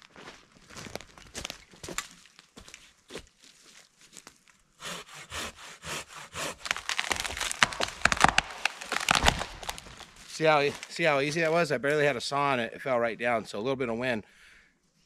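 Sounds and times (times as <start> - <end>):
handsaw cutting wood: 4.8 - 8.1
wood cracking and splintering: 4.8 - 11.5.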